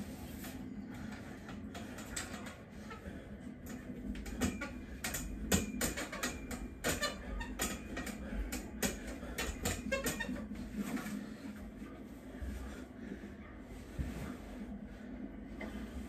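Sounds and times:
dip station clicking and creaking: 1.1s - 11.2s.

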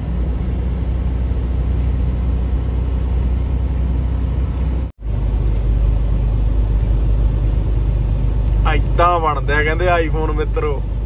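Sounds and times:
truck engine rumble: 0.0s - 11.0s
tyres on snowy road: 0.0s - 11.0s.

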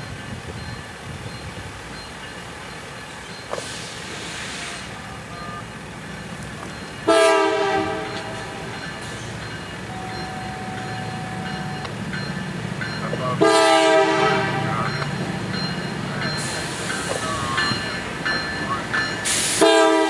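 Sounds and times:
train rumbling: 0.0s - 20.0s
locomotive air horn blasts: 7.1s - 8.7s, 13.4s - 14.9s, 19.4s - 20.0s.

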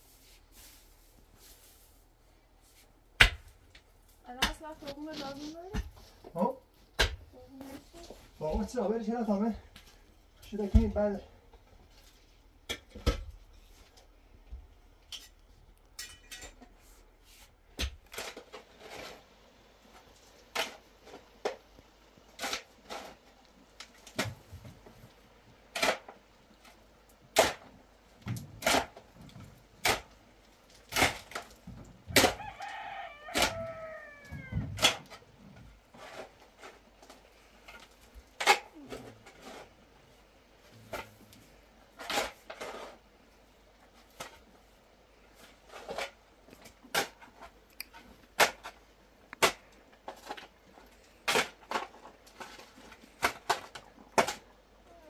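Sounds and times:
shovel scraping soil and stones: 4.1s - 6.2s, 41.9s - 43.1s
rooster crowing: 32.1s - 34.7s.

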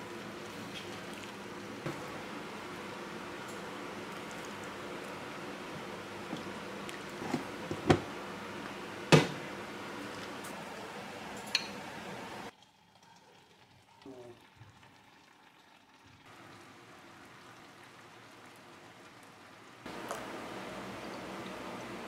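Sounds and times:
stew bubbling in a pan: 12.5s - 22.0s.

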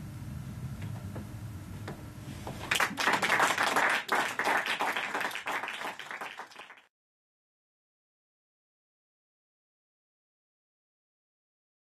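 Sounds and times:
audience applauding: 2.6s - 6.9s.

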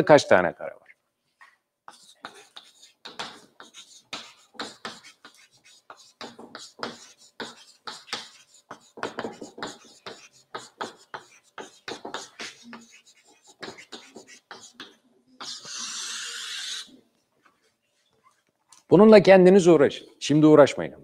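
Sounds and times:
chalk tapping and scratching on chalkboard: 1.9s - 18.4s.

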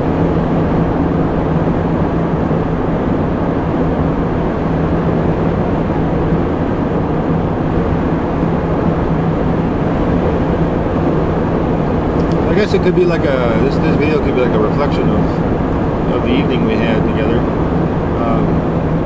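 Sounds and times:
road and engine noise in cabin: 0.0s - 19.0s.

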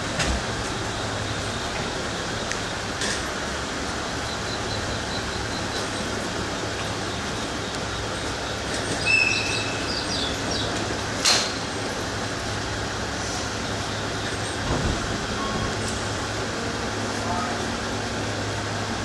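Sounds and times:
hum of standing train: 0.0s - 19.0s
locomotive whistle: 9.0s - 10.2s.

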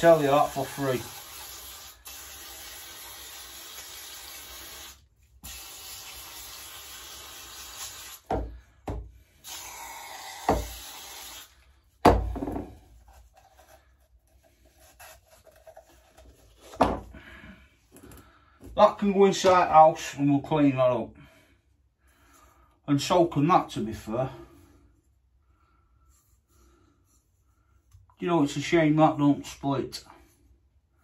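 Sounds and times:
aerosol spray can hissing: 0.1s - 8.3s, 9.4s - 11.6s.

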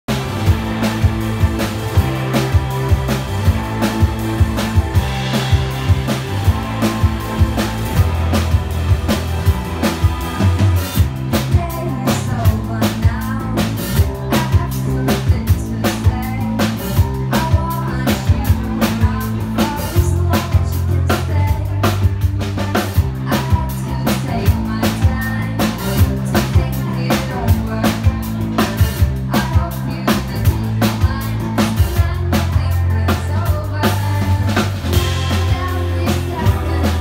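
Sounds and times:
drum kit beat: 0.0s - 37.0s
electric bass line: 0.0s - 37.0s
woman singing lead vocal: 11.3s - 37.0s.

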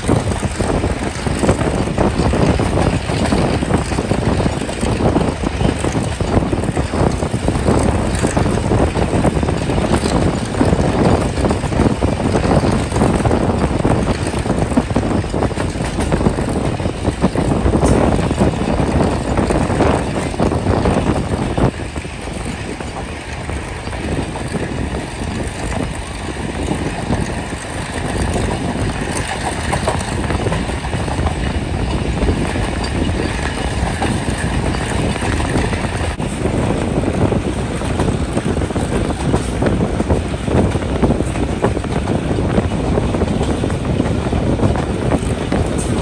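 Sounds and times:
train wheels rumbling and rattling: 0.0s - 46.0s
wind buffeting microphone: 0.0s - 46.0s.

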